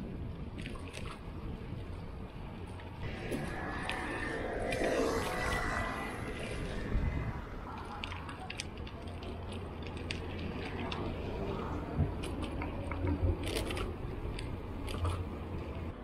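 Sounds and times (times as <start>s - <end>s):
bicycle tyres rumbling on asphalt: 0.0s - 16.0s
bicycle clicks and ticks: 8.0s - 11.4s.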